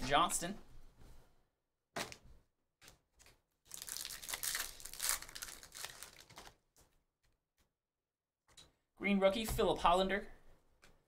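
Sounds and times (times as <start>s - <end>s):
card pack wrapper tearing: 3.2s - 6.6s.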